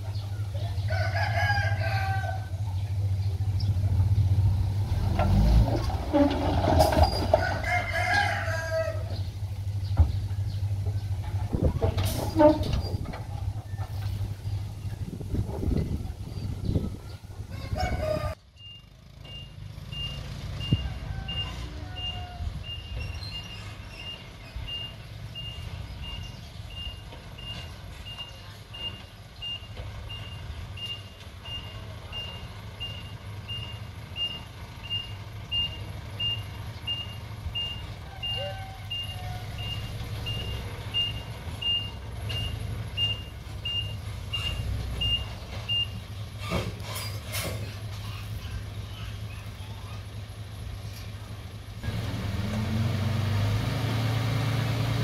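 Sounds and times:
heavy diesel engine rumble: 0:00.0 - 0:55.0
reversing alarm beeping: 0:18.6 - 0:46.0.

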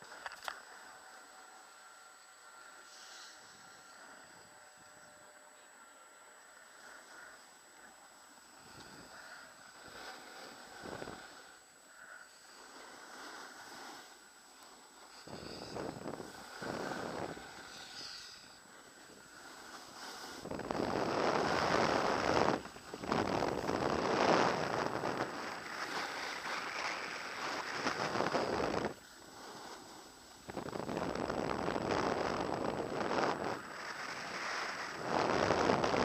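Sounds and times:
skis scraping over snow: 0:06.8 - 0:36.0
wind on microphone: 0:15.2 - 0:18.3, 0:19.4 - 0:36.0.

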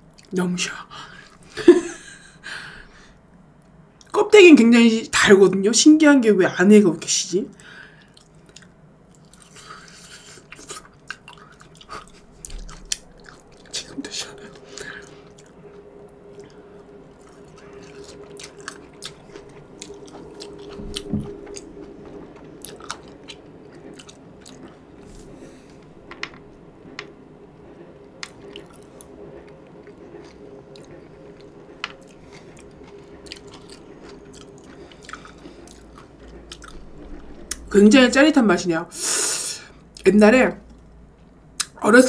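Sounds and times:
faint steady hum: 0:00.0 - 0:42.0
chewing with wet crunches: 0:08.0 - 0:25.8, 0:28.2 - 0:37.7.

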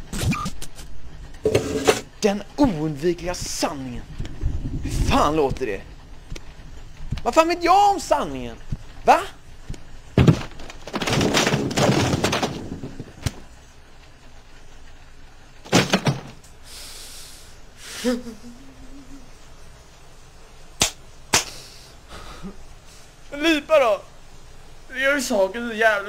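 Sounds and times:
sharp knocks and thuds: 0:10.2 - 0:13.5, 0:15.6 - 0:16.4
man crying: 0:17.9 - 0:19.3.

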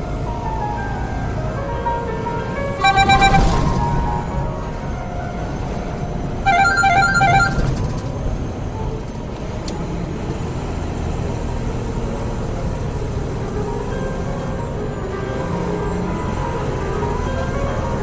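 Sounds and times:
road noise: 0:00.0 - 0:18.0
truck engine rumble: 0:00.0 - 0:18.0
bright electronic tones: 0:02.8 - 0:03.8, 0:06.5 - 0:08.1.

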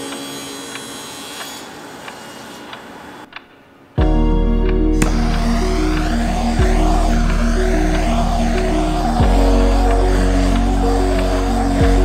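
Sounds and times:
bass-heavy synth music: 0:04.0 - 0:12.0.

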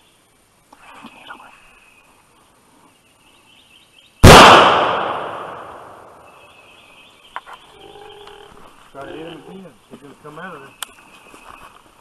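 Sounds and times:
rifle shot echoing: 0:04.2 - 0:06.2.

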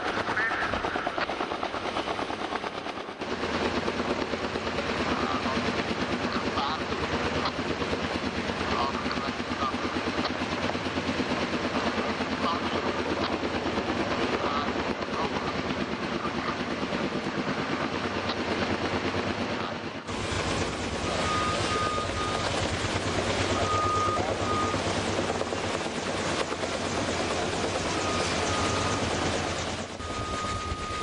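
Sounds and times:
helicopter rotor beat: 0:00.0 - 0:31.0
high beeping: 0:20.6 - 0:22.5, 0:23.5 - 0:24.9, 0:27.9 - 0:31.0.

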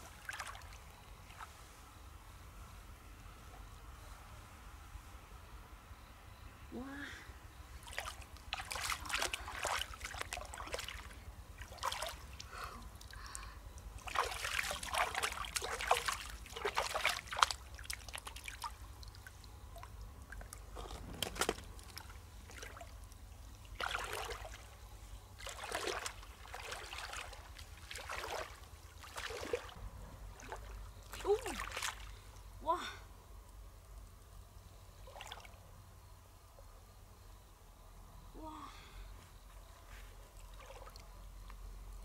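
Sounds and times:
stream water sloshing and splashing: 0:00.0 - 0:01.8, 0:07.8 - 0:32.6, 0:35.0 - 0:35.7, 0:40.2 - 0:42.0.

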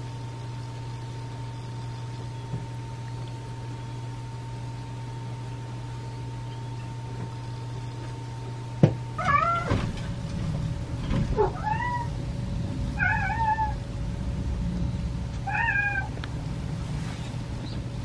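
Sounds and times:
kittens mewing: 0:09.2 - 0:09.8, 0:11.3 - 0:12.2, 0:13.0 - 0:13.8, 0:15.4 - 0:16.2.

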